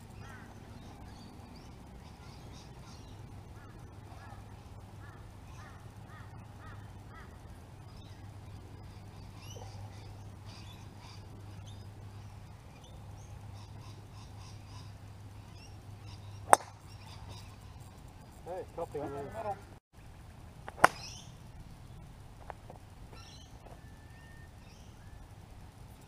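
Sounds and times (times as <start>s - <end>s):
birds calling: 0.0s - 20.1s, 20.7s - 26.0s
low hum: 0.0s - 26.0s
golf club striking ball: 16.4s - 16.9s, 20.7s - 21.3s.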